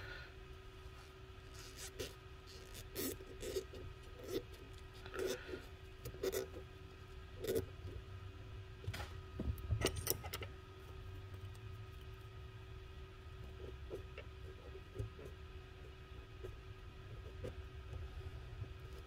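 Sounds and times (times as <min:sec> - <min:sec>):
fingers rubbing and rustling: 0:01.0 - 0:06.7.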